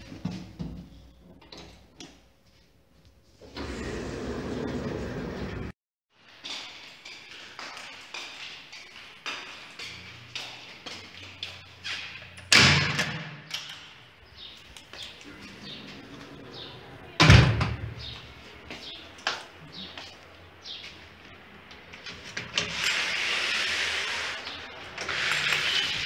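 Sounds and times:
footsteps on tiled floor: 6.2 - 12.4, 18.0 - 22.4
loud door bangs: 12.5 - 13.5, 17.2 - 18.1.

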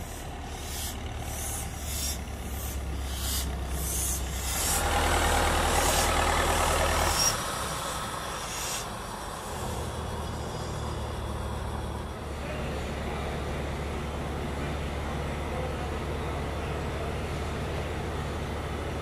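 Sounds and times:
air hisses: 0.0 - 5.0, 8.3 - 9.6
diesel locomotive engine running: 0.0 - 19.0.

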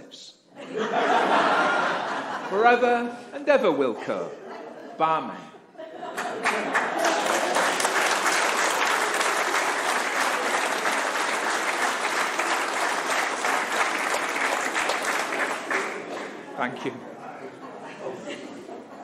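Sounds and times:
crowd applauding: 6.1 - 16.7.

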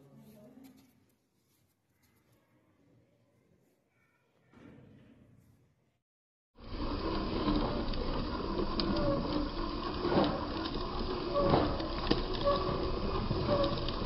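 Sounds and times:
small electric motor running: 6.6 - 14.0
grit clicking: 6.7 - 14.0.

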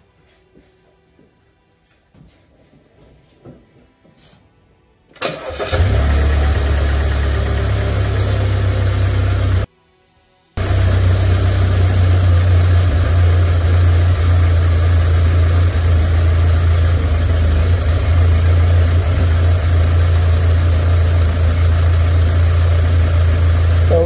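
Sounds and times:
car engine idling: 5.4 - 9.7, 10.6 - 24.0.

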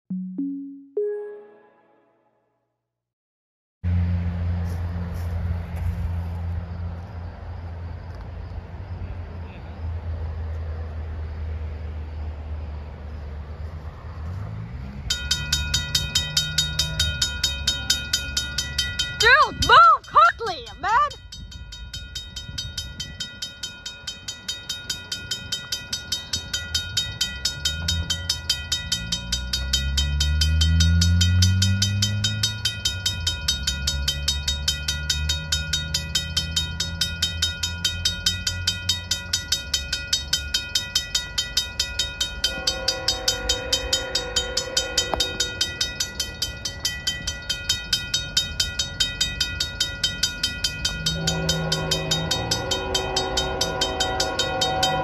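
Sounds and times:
high steady tone: 0.1 - 2.3
freight cars rumbling: 3.8 - 55.0
diesel locomotive engines passing: 3.9 - 55.0
mechanical crossing bell ringing: 15.1 - 55.0.

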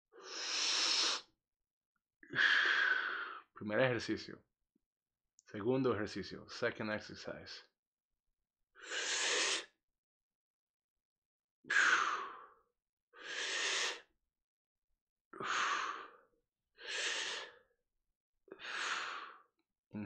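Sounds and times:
man breathing deeply: 0.2 - 1.2, 2.2 - 3.4, 11.7 - 12.6, 13.2 - 14.1, 15.4 - 16.2, 16.8 - 17.7, 18.5 - 19.5.

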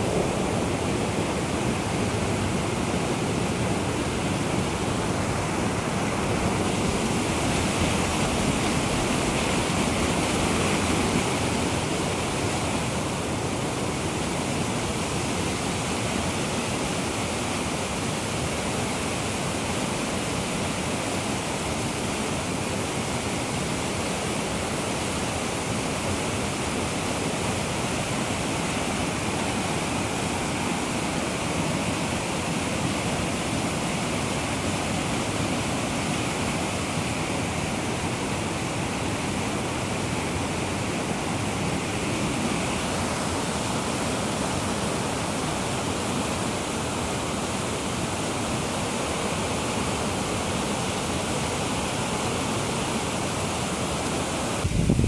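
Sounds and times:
waterfall rushing over rocks: 0.0 - 55.0.

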